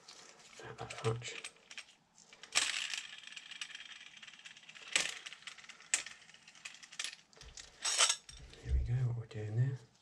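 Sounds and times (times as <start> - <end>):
small metal clicks and rattles: 0.8 - 8.6
metal clinks: 7.6 - 8.6.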